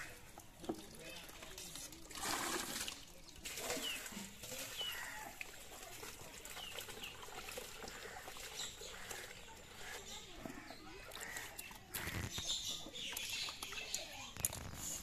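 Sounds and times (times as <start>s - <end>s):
faint outdoor background noise: 0.0s - 15.0s
birds chirping: 7.9s - 15.0s.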